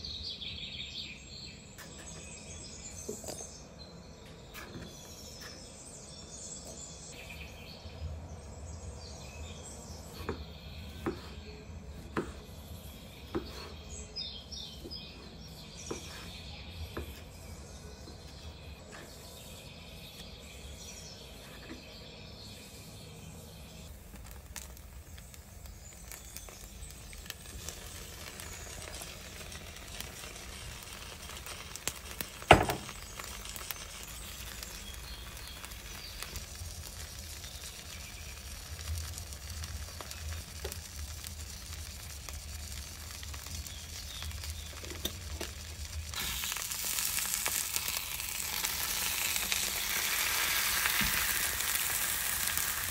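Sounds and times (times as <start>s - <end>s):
food sizzling in frying pan: 23.8s - 52.9s.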